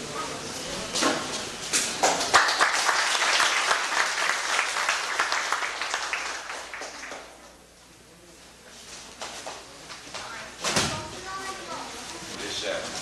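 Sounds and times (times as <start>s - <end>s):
applause: 2.0s - 7.5s.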